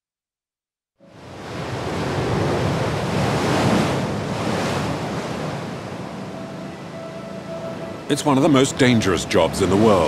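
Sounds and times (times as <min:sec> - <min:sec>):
waves surging and breaking: 0:01.0 - 0:10.0
strong wind: 0:01.2 - 0:08.1.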